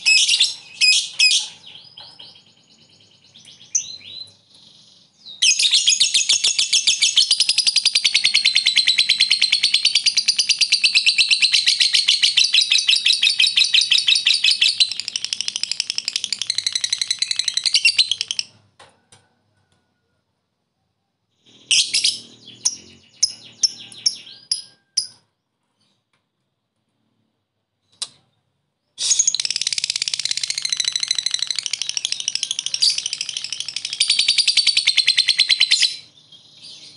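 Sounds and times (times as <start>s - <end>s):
lovebird chattering chirps: 3.3s - 18.5s, 29.0s - 36.9s.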